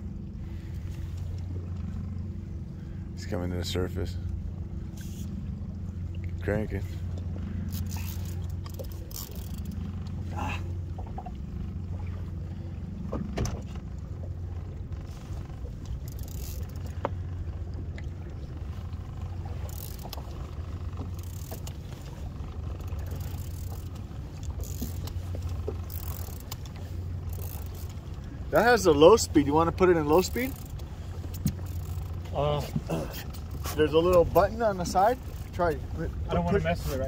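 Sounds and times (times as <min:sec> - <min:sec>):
outboard motor idling: 0:00.0 - 0:37.0
light clicks and knocks: 0:13.0 - 0:28.4, 0:29.8 - 0:35.6.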